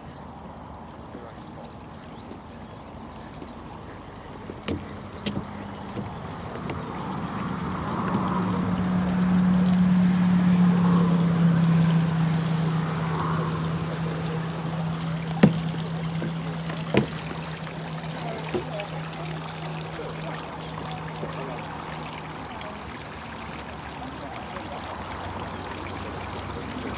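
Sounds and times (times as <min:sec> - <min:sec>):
low engine drone passing: 0:00.0 - 0:26.9.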